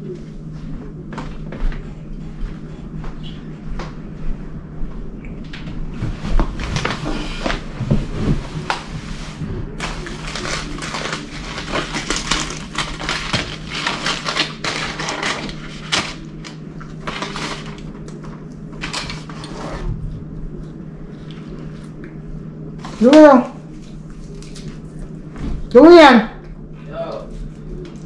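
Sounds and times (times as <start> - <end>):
aluminium foil crinkling: 9.8 - 19.6, 23.8 - 25.2.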